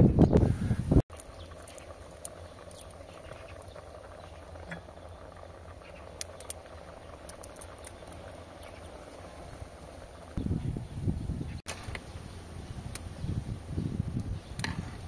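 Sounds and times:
small pops and ticks: 0:01.1 - 0:09.0
pot simmering and bubbling: 0:01.1 - 0:15.0.

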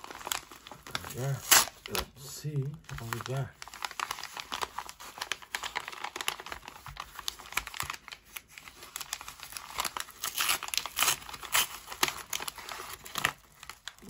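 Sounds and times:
paper tearing: 0:00.0 - 0:02.1, 0:03.0 - 0:14.0
paper mailer crinkling: 0:00.0 - 0:14.0.

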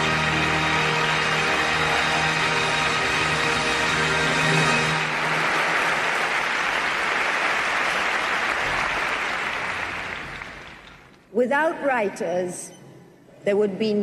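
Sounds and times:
music: 0:00.0 - 0:06.7
audience applauding: 0:00.0 - 0:11.2.

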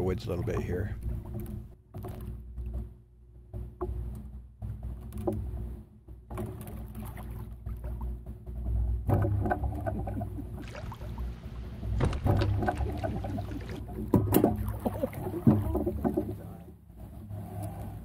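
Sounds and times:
low rumble: 0:00.0 - 0:18.0
people clunking in boat: 0:07.6 - 0:18.0
boat hull knocking on rocks: 0:08.6 - 0:16.5.

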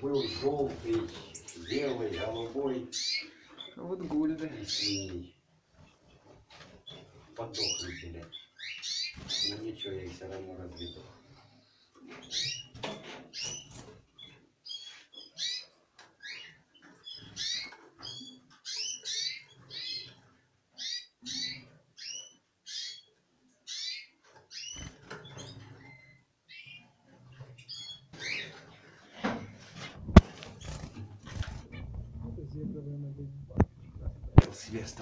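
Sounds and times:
finches chirping: 0:00.0 - 0:03.8, 0:04.6 - 0:05.4, 0:06.9 - 0:10.1, 0:13.3 - 0:20.2, 0:20.8 - 0:23.1, 0:23.7 - 0:26.8, 0:27.6 - 0:28.6.

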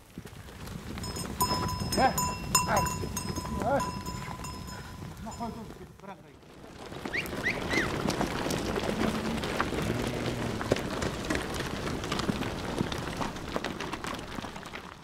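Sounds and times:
hooves clicking on stones: 0:00.0 - 0:15.0
low animal call: 0:08.7 - 0:11.0.

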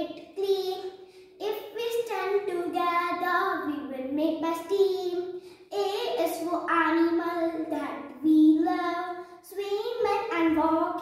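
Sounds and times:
girl singing unaccompanied: 0:00.0 - 0:11.0.

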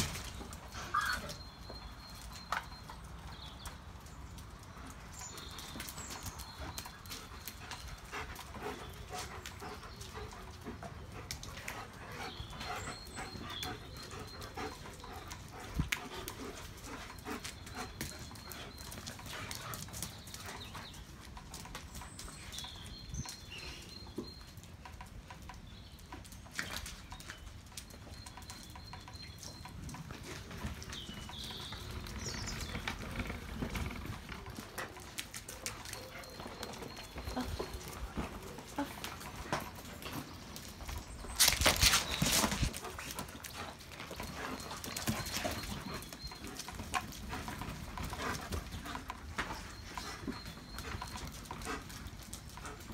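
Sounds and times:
dogs playing: 0:00.0 - 0:52.9
claws scuffling on concrete: 0:31.5 - 0:45.8.

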